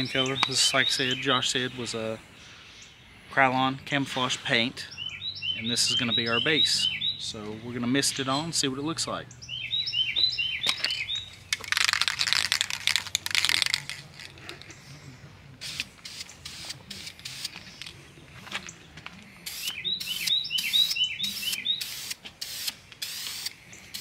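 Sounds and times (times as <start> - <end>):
small bird chirping: 0.0 - 1.7, 4.9 - 7.5, 9.3 - 12.4, 19.5 - 24.0
spray paint hissing: 11.5 - 14.3, 15.6 - 17.9, 19.4 - 24.0
aerosol can rattling: 11.5 - 14.6.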